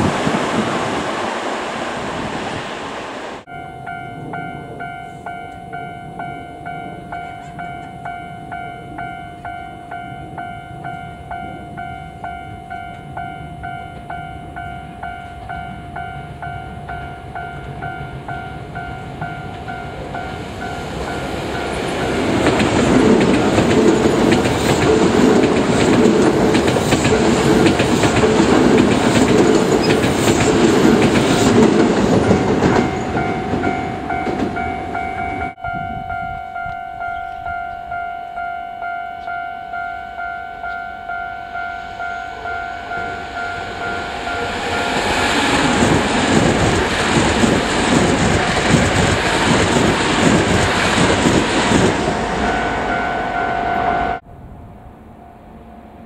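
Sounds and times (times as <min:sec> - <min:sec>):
electric train clickety-clack: 0:00.0 - 0:02.8, 0:04.3 - 0:35.6, 0:42.5 - 0:53.6
level-crossing bell dinging: 0:03.4 - 0:22.4, 0:32.0 - 0:46.6, 0:52.1 - 0:54.2.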